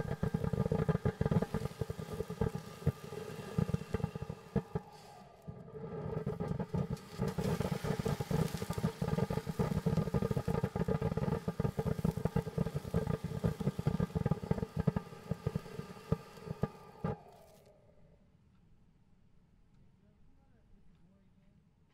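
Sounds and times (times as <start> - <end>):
firework fountain hissing and crackling: 0.0 - 17.7.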